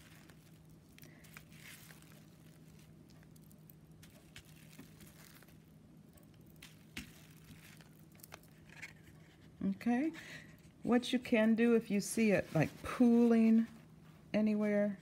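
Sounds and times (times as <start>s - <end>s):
plastic wrap and paper crinkling: 0.0s - 9.6s, 12.0s - 13.9s
steady low hum: 0.0s - 15.0s.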